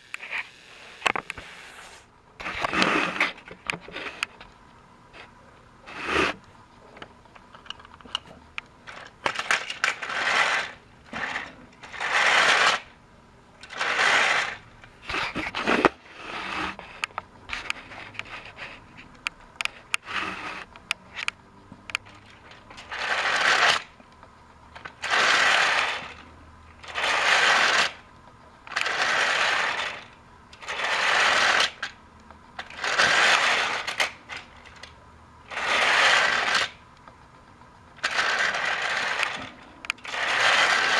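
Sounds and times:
scattered clicks: 6.4s - 12.8s, 16.9s - 40.9s
toy train on plastic track: 8.8s - 13.0s, 13.6s - 24.0s, 24.8s - 28.1s, 28.7s - 32.0s, 32.6s - 36.8s, 37.9s - 40.9s.

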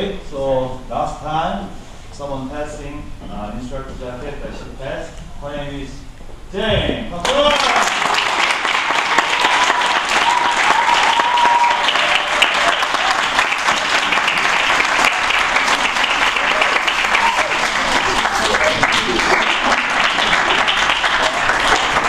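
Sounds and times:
audience applauding: 7.2s - 22.0s.

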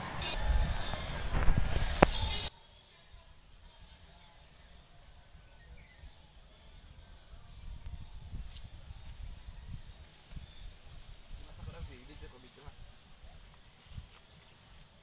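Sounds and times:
wind rumble on microphone: 0.0s - 2.5s, 6.8s - 14.2s
insect chorus drone: 0.0s - 15.0s.

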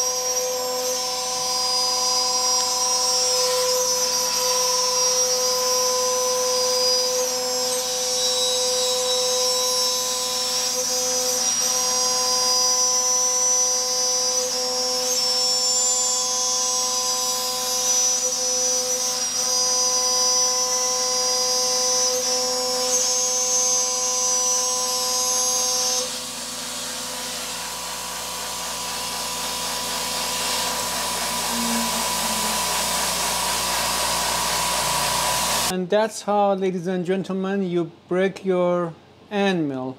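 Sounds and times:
high-pitched machining whine: 0.0s - 35.7s
spindle and air blast hissing: 27.9s - 35.7s.

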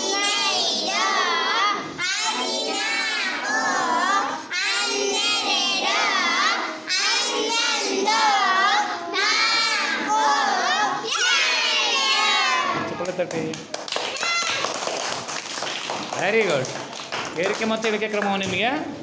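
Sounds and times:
children chanting: 0.0s - 13.0s.

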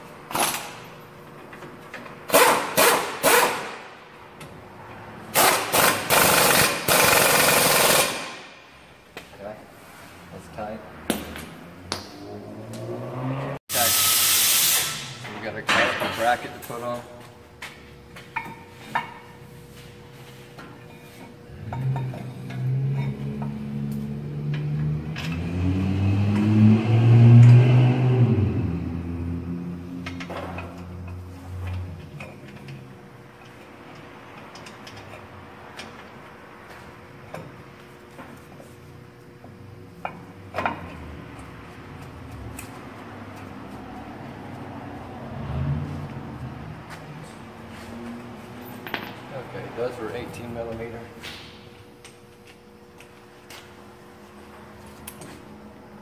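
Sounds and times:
air impact wrench hammering: 2.3s - 4.0s, 5.3s - 8.6s, 13.7s - 15.2s.

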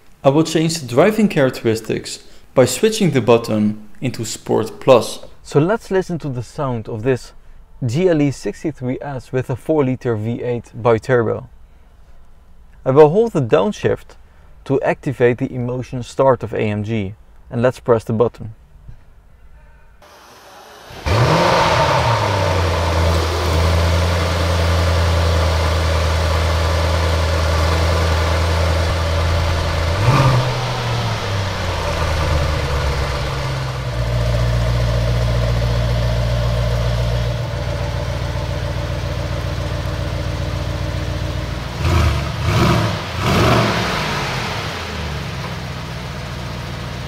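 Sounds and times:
car engine revving: 20.0s - 46.4s
car engine idling: 20.0s - 47.0s
car engine start-up flare: 20.0s - 47.0s.

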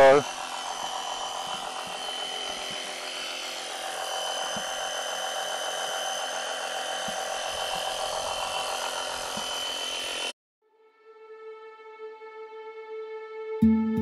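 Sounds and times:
small motor whining: 0.0s - 10.4s.

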